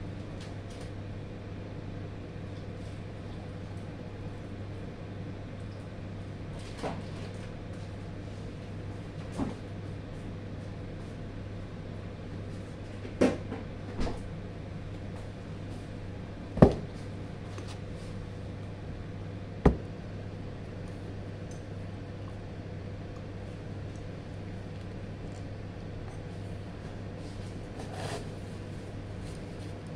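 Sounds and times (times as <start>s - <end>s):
steady low hum: 7.6s - 29.9s.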